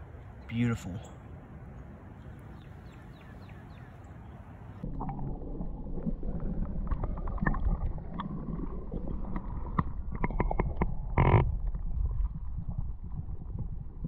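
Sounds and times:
muffled underwater water rush: 0:04.2 - 0:14.0
underwater clicks and knocks: 0:06.7 - 0:14.0.

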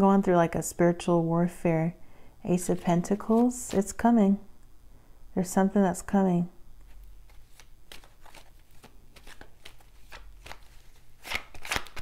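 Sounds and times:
cards being shuffled: 0:02.6 - 0:04.0, 0:06.8 - 0:12.0.

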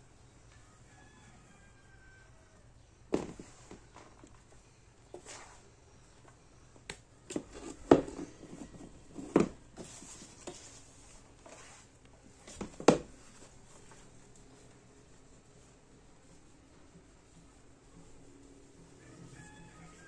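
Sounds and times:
flour rustling: 0:09.8 - 0:12.0.

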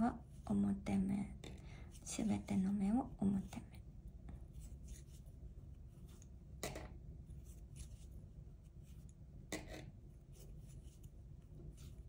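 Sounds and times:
knitting needles rubbing and ticking: 0:02.0 - 0:06.4, 0:07.2 - 0:12.0.

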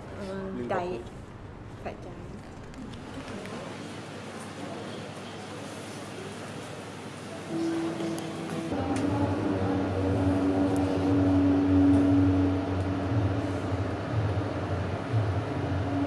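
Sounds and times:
low droning soundtrack: 0:07.5 - 0:16.0.

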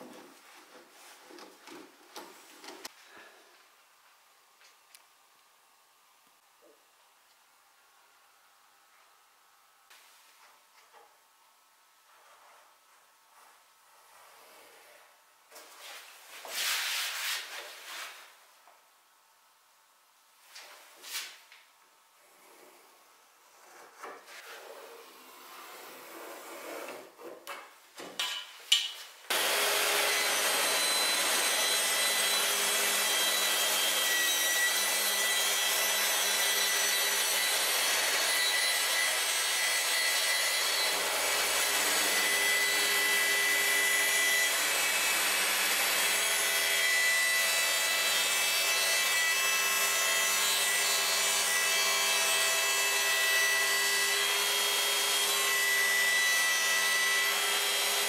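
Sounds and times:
power tool cutting wood: 0:29.3 - 0:58.0.

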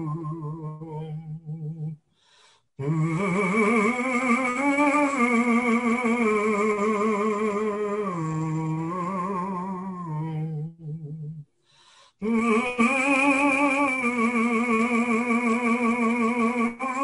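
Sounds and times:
man humming with vibrato: 0:00.0 - 0:02.0, 0:02.8 - 0:11.5, 0:12.2 - 0:17.0.

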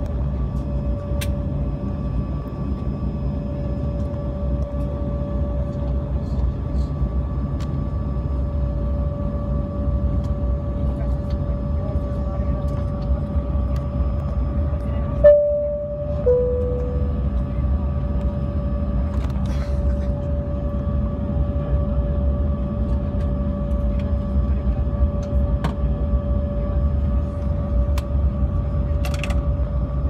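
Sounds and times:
jet engine rumble: 0:00.0 - 0:30.0
engine whine: 0:11.2 - 0:28.2
two-note chime: 0:15.2 - 0:17.4.

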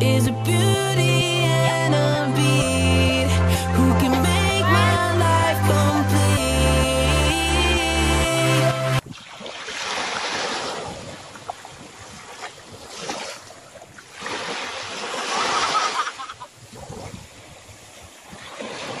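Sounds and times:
small waves washing over sand: 0:09.0 - 0:19.0.

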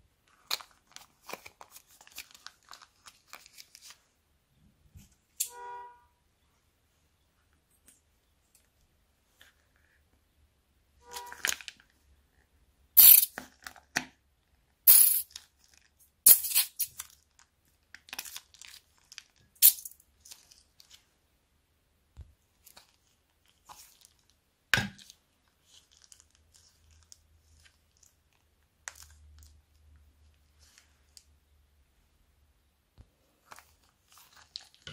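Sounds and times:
plastic pouches crinkling and tearing: 0:00.3 - 0:04.0, 0:16.8 - 0:21.0, 0:22.6 - 0:24.4, 0:25.0 - 0:29.5, 0:33.5 - 0:34.9.

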